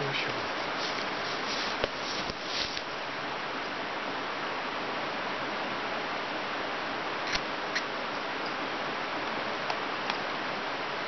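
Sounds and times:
flowing river water: 0:00.0 - 0:11.0.

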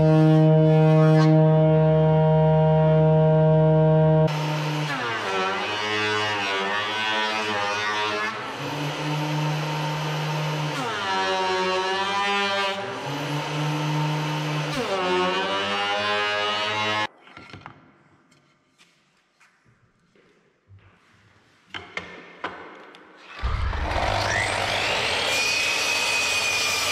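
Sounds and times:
thickness planer whining: 0:00.0 - 0:17.1, 0:23.2 - 0:26.9.

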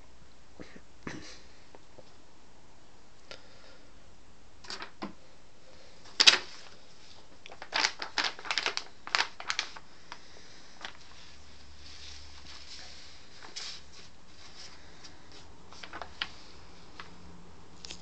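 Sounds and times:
paper crackling and flapping: 0:04.6 - 0:05.1, 0:06.1 - 0:17.2.

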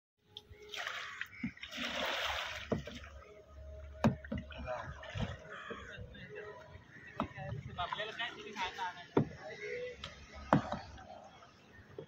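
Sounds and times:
paddle splashing in water: 0:00.6 - 0:06.0.

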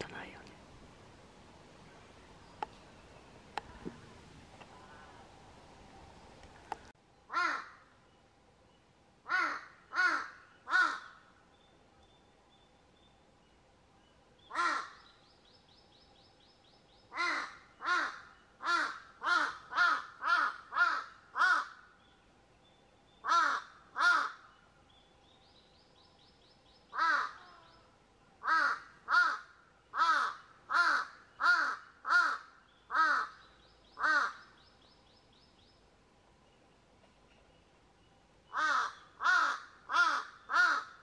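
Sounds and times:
crows cawing: 0:07.3 - 0:07.9, 0:09.3 - 0:11.2, 0:14.5 - 0:15.0, 0:17.1 - 0:21.9, 0:23.2 - 0:24.5, 0:26.9 - 0:27.6, 0:28.4 - 0:33.4, 0:34.0 - 0:34.5, 0:38.5 - 0:41.0.

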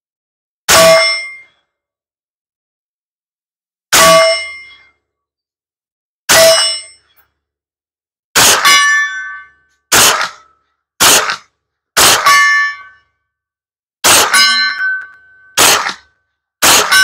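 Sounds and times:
steel plate target ringing: 0:00.7 - 0:01.5, 0:03.9 - 0:05.0, 0:06.3 - 0:07.2, 0:08.4 - 0:11.4, 0:12.0 - 0:13.1, 0:14.0 - 0:17.0
rifle shots: 0:08.4 - 0:08.8, 0:09.9 - 0:10.4, 0:11.0 - 0:11.4, 0:12.0 - 0:12.4, 0:14.0 - 0:14.5, 0:15.6 - 0:17.0.

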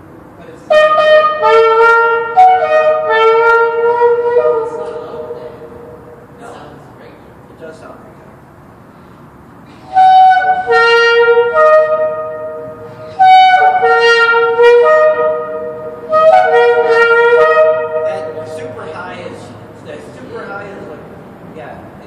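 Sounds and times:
shofars blowing long blasts: 0:00.6 - 0:06.4, 0:08.8 - 0:18.9.

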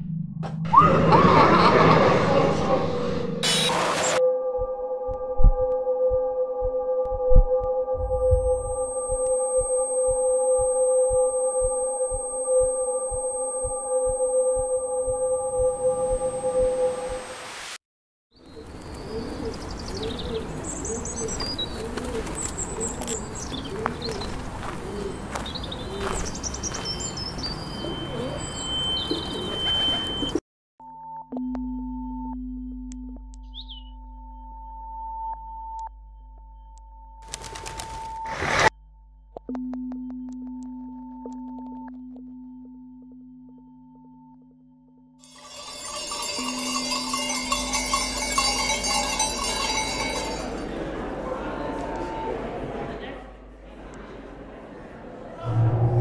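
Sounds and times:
low pure tones: 0:00.0 - 0:17.2, 0:55.4 - 0:56.0
faint steady ringing tone: 0:08.0 - 0:17.2, 0:45.3 - 0:50.6
small birds chirping: 0:18.4 - 0:29.8
pigeons cooing: 0:18.6 - 0:26.2
sheep bells clanking: 0:45.3 - 0:50.8
thin high tone: 0:45.3 - 0:50.8.

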